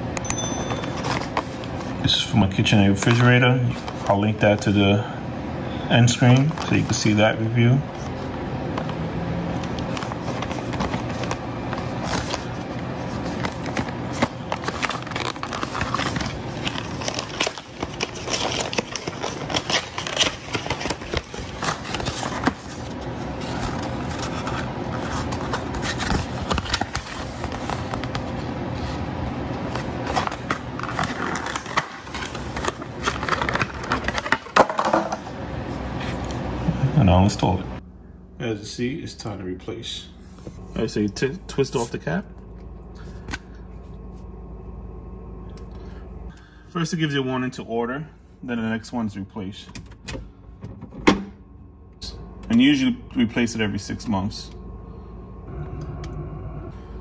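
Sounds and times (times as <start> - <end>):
cardboard and plastic packaging handled: 0.7 - 2.0, 8.0 - 29.0, 29.6 - 35.3.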